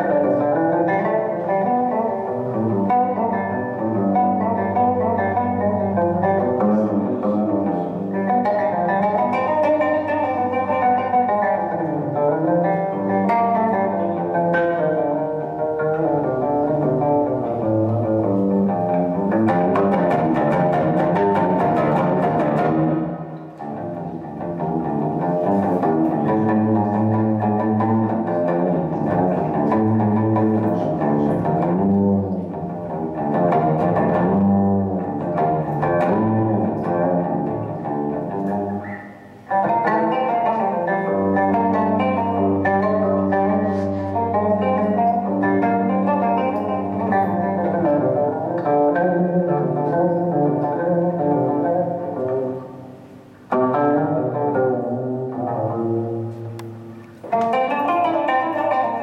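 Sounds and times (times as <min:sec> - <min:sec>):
plucked string instrument: 0:00.0 - 0:59.0.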